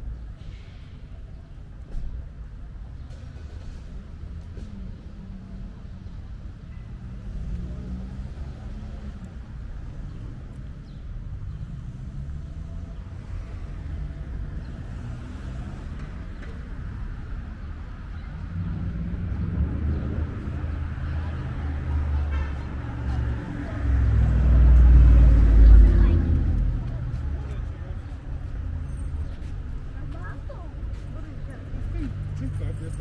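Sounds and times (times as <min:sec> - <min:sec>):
cars passing: 0:00.0 - 0:33.0.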